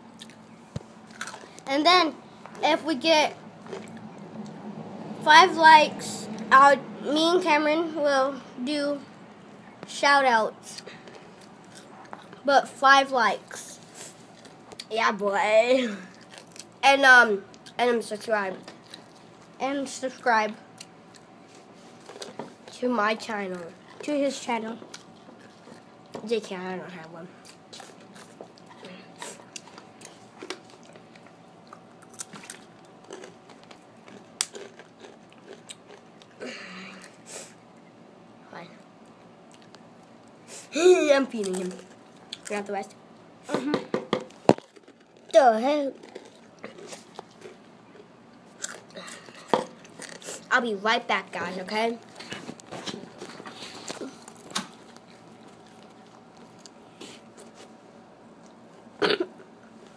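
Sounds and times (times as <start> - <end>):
crunching tortilla chip: 30.0 - 36.4.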